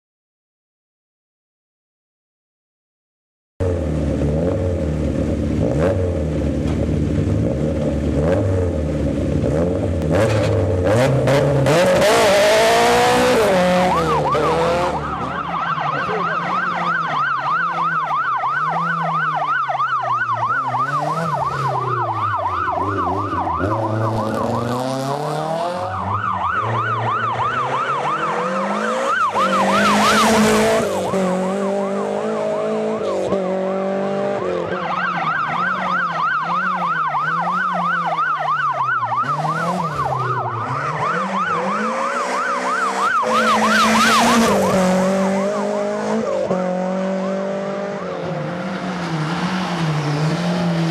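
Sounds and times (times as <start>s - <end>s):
siren warbling: 11.3s - 48.5s
car engine passing by: 39.1s - 50.9s.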